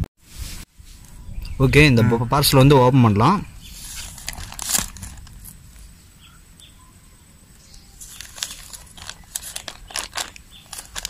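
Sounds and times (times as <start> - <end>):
plastic bag crinkling: 3.9 - 5.6, 8.0 - 11.0.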